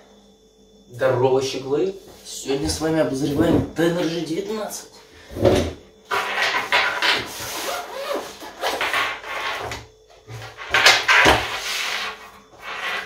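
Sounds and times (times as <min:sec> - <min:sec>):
zip rasping: 0:07.2 - 0:09.5
fabric rubbing: 0:07.3 - 0:08.8.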